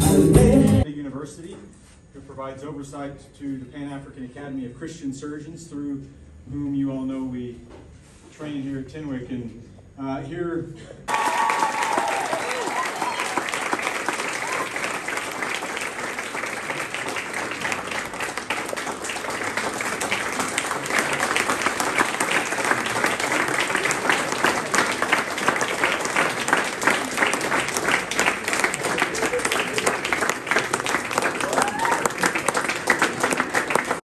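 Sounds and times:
crowd applauding: 0:11.1 - 0:34.0.

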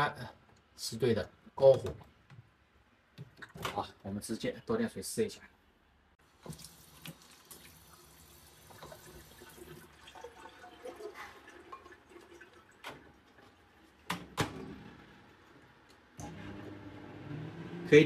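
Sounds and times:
tap water running into container: 0:06.4 - 0:14.4
microwave door opening and closing: 0:14.1 - 0:14.8.

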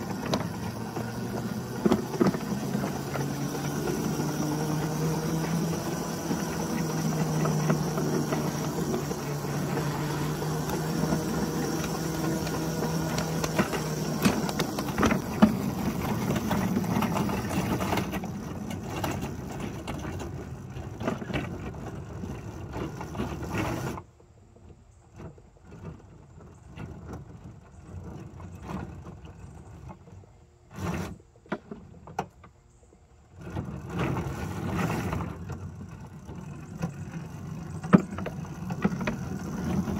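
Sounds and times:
electric motor humming: 0:00.0 - 0:19.6
wheels clicking over rails: 0:00.0 - 0:39.9.

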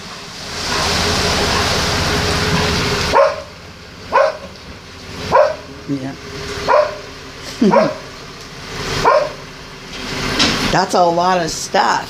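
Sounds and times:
truck driving past on wet street: 0:00.0 - 0:12.0
dog barking: 0:03.1 - 0:03.5, 0:04.1 - 0:04.5, 0:05.3 - 0:05.7, 0:06.7 - 0:08.1, 0:09.0 - 0:09.4.

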